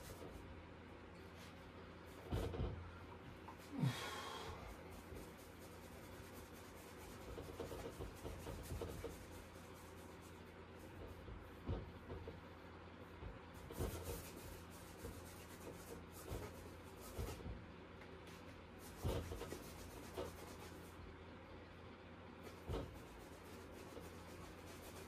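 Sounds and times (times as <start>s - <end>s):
faint low hum: 0.0s - 25.0s
paint brush rubbing on canvas: 4.6s - 12.3s, 13.1s - 17.5s, 18.3s - 21.0s, 22.4s - 25.0s.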